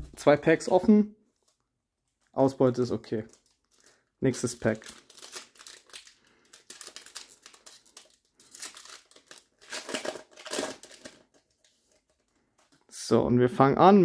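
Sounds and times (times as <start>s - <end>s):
card pack wrapper crinkling and tearing: 2.1s - 12.2s.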